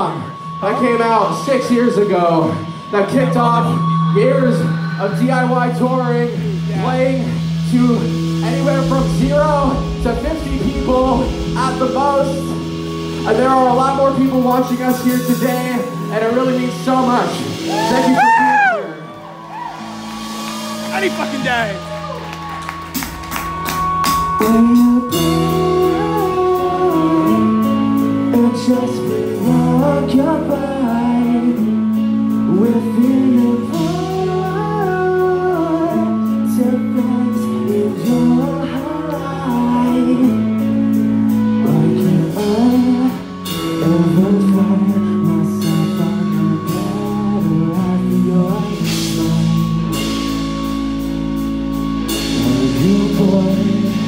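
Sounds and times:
live rock band playing: 0.0 - 54.0
lead vocals singing: 24.3 - 31.8.

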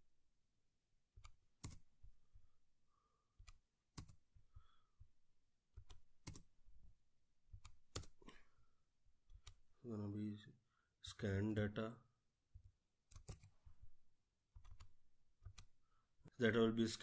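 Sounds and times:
computer keyboard typing: 1.2 - 2.0, 3.4 - 4.4, 5.7 - 6.6, 7.5 - 8.2, 12.6 - 13.8, 14.5 - 15.8.

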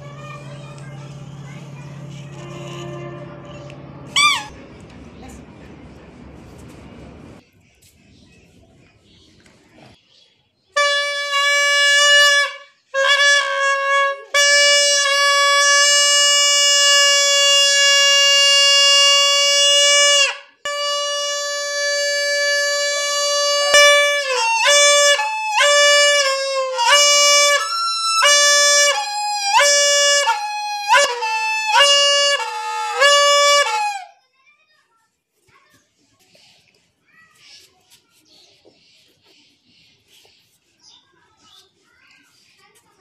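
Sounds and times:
toy trumpet horn reedy note: 2.1 - 4.6, 10.8 - 34.1.

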